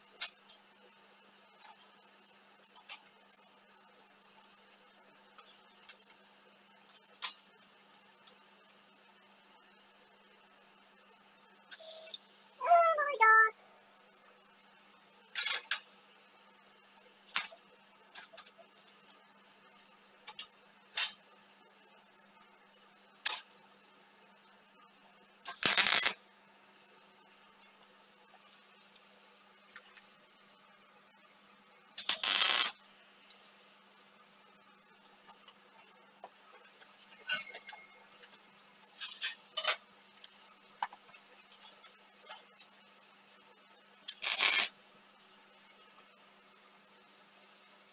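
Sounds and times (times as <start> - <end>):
arc welder bursts: 25.5 - 26.2, 32.0 - 32.7, 44.1 - 44.8
steel pieces clinking: 25.6 - 26.2, 32.0 - 32.7, 44.1 - 44.7.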